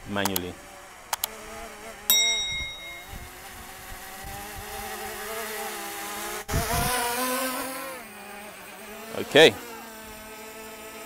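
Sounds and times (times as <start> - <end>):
drone propellers buzzing: 1.0 - 1.9.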